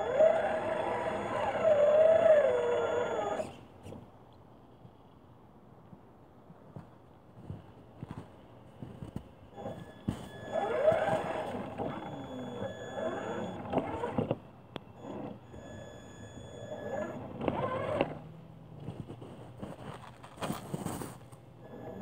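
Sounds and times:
rc car electric motor whining: 0:00.0 - 0:03.6, 0:09.6 - 0:14.4, 0:15.0 - 0:18.3.

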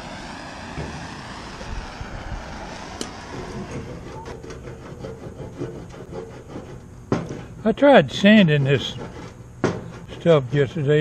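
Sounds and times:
propane torch hissing: 0:00.0 - 0:05.3
scraper rasping on paint: 0:03.8 - 0:06.9, 0:08.4 - 0:10.8.

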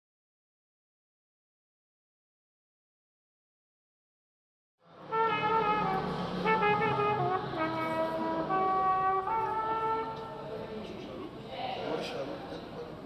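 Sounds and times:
solo wind instrument jazz melody: 0:05.0 - 0:10.6.

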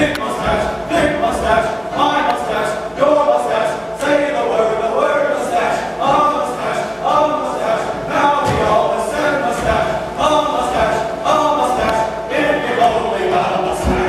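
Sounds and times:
men singing in chorus: 0:00.0 - 0:14.0
low thumps: 0:07.9 - 0:14.0.

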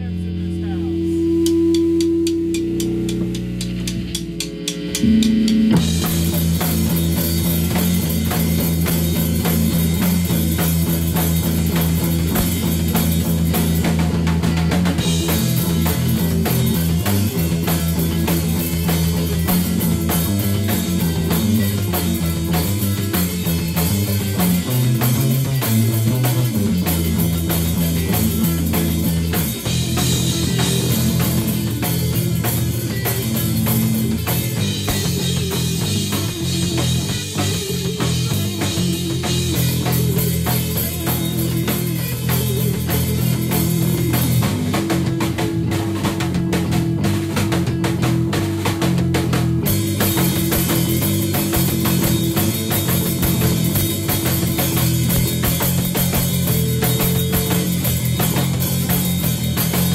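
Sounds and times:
rock band playing: 0:00.0 - 0:59.9.

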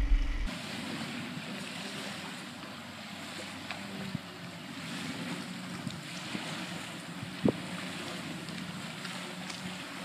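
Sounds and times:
wind over microphone: 0:00.0 - 0:02.2, 0:04.0 - 0:09.3
water lapping against boat hull: 0:00.0 - 0:10.0.

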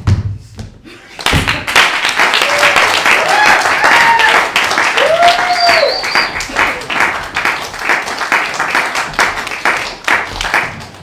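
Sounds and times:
audience applauding: 0:01.2 - 0:11.0
person whooping: 0:02.4 - 0:06.8.

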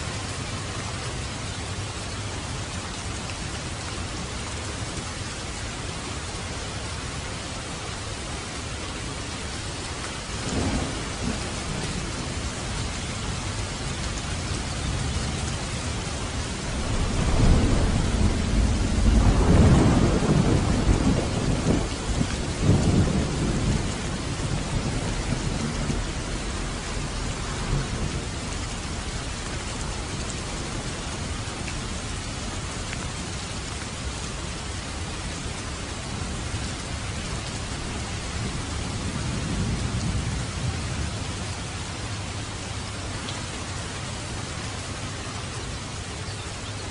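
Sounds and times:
heavy rain falling: 0:00.0 - 0:46.9
thunder rumbling: 0:10.2 - 0:33.2, 0:37.2 - 0:42.0.

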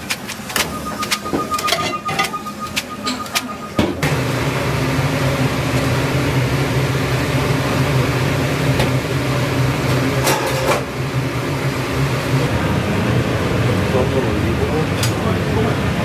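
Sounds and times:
tongs clattering: 0:00.0 - 0:03.7
kitchen machine hum: 0:00.0 - 0:16.0.

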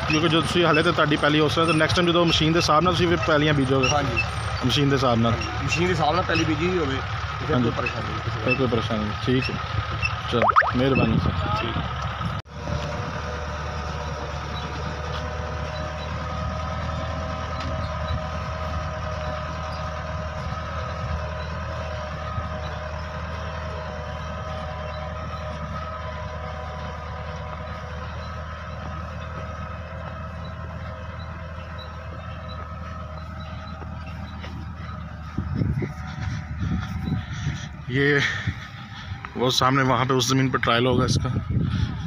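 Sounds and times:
tractor engine drone: 0:00.0 - 0:42.0
multi-tone whine: 0:10.4 - 0:11.1.

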